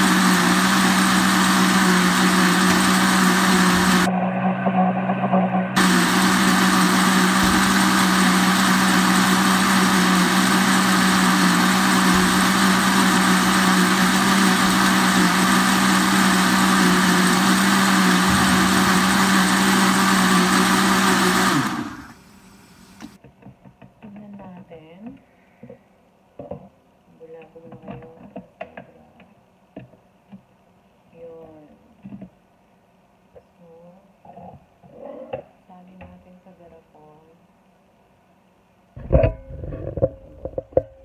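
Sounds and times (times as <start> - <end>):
blender running: 0.0 - 4.1, 5.8 - 23.2.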